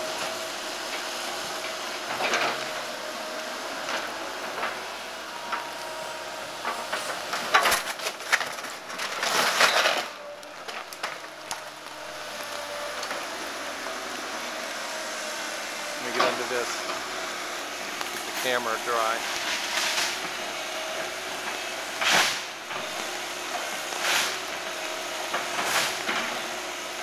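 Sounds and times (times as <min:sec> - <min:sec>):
excavator running: 0:00.0 - 0:27.0
wooden boards cracking and splintering: 0:07.0 - 0:13.3.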